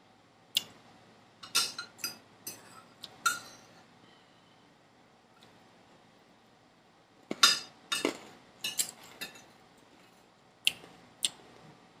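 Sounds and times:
fork clinking on metal tray: 7.3s - 9.5s.

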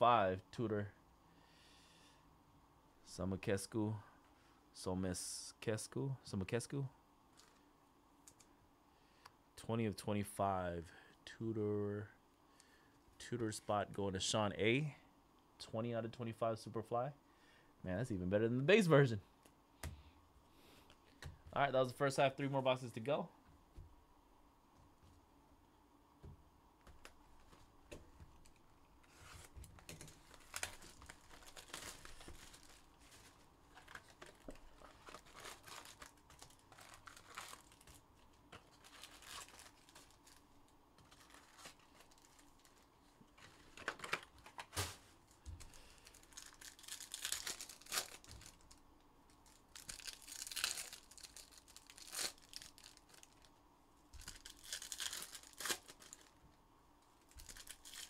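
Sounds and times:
card packs tearing and crinkling: 29.1s - 40.4s, 41.0s - 48.8s, 49.4s - 53.5s, 54.2s - 56.4s, 57.3s - 58.0s.

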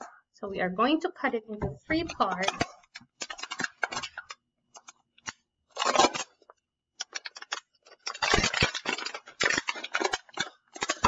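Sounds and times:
scissors cutting plastic bottle: 1.9s - 11.0s.

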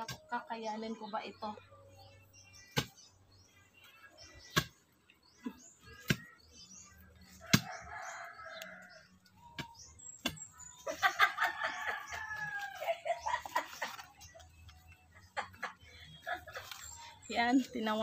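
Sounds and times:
small birds chirping: 0.0s - 18.0s
digging bar striking soil: 7.4s - 7.8s, 9.5s - 10.5s.

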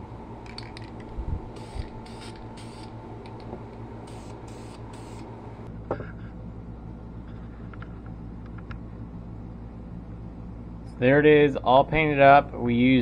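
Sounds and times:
steady low hum: 0.0s - 13.0s
spray can hissing: 1.6s - 2.9s, 4.1s - 5.3s.

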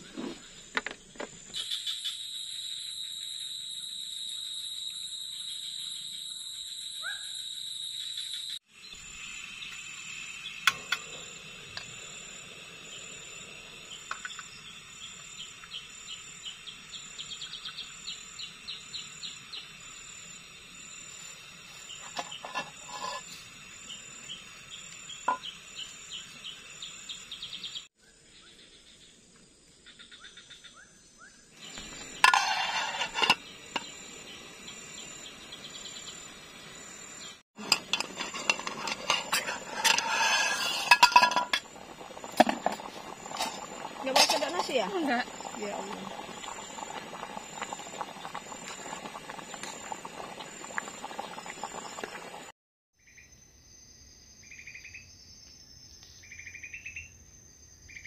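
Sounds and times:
insects chirping: 0.0s - 58.0s
pot boiling hard: 8.7s - 26.6s, 31.6s - 52.5s
cookware clinking: 32.2s - 33.9s, 37.6s - 41.7s.

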